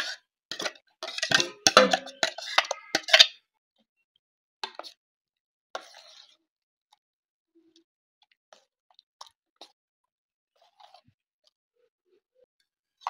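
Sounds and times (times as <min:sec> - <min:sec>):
ladle scraping steel bowl: 0:00.5 - 0:03.2.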